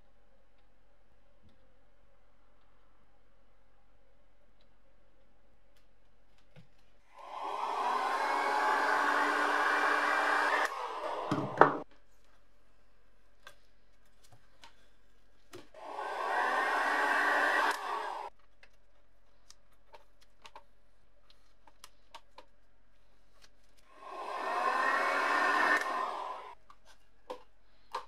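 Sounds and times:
heat gun blowing air: 0:07.2 - 0:11.8, 0:15.8 - 0:18.3, 0:24.0 - 0:26.6.

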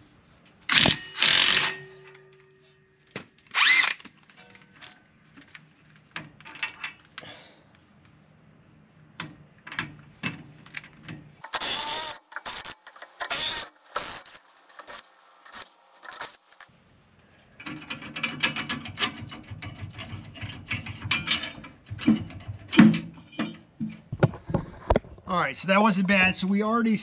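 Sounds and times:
power tool bursts: 0:00.7 - 0:01.8, 0:11.4 - 0:16.6.

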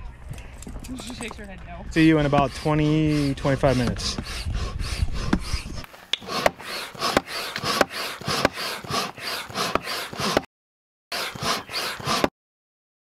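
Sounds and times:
hand pump strokes rushing air: 0:02.0 - 0:10.5, 0:11.1 - 0:12.4.

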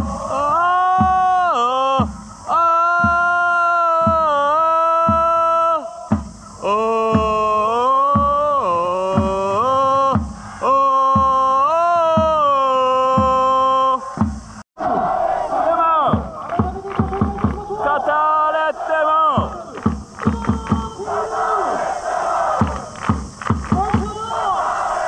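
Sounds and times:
drum beating: 0:00.0 - 0:14.6, 0:16.0 - 0:18.1, 0:18.8 - 0:25.0
crowd chanting melody: 0:05.1 - 0:11.6, 0:14.0 - 0:25.0.

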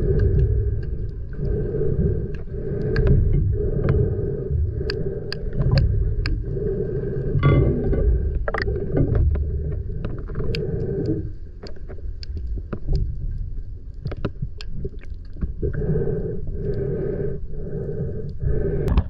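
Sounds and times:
sharp clicks and crackles: 0:00.0 - 0:07.7, 0:08.3 - 0:15.8
faint droning hum: 0:00.0 - 0:19.0
muffled underwater rumble: 0:00.0 - 0:19.0.

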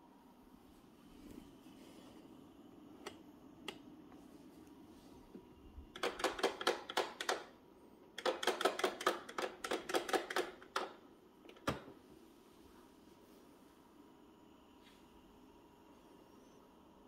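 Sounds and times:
rapid sharp clicking: 0:06.0 - 0:07.5, 0:08.2 - 0:11.0.

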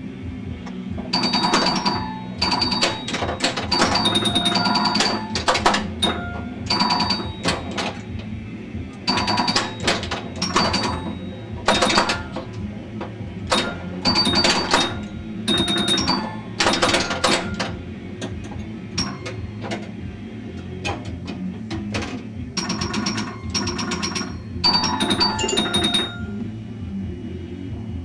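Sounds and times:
pinball machine mechanical clacks: 0:00.7 - 0:26.4
ringing electronic tones: 0:01.1 - 0:08.0, 0:09.0 - 0:12.6, 0:13.5 - 0:18.0, 0:18.9 - 0:19.6, 0:22.6 - 0:26.5.

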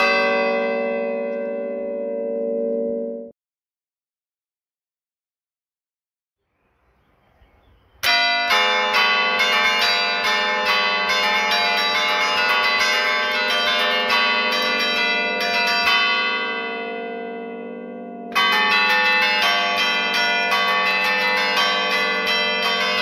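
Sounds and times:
church bells playing festive tune: 0:00.0 - 0:03.3, 0:08.0 - 0:23.0.

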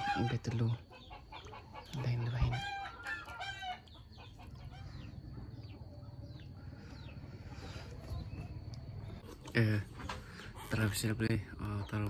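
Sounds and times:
chicken clucking: 0:00.0 - 0:09.4.

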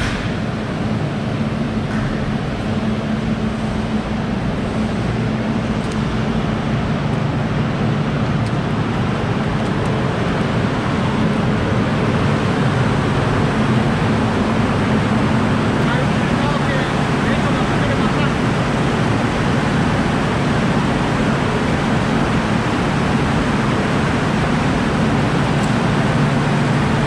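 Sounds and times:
machinery humming: 0:00.0 - 0:27.0.

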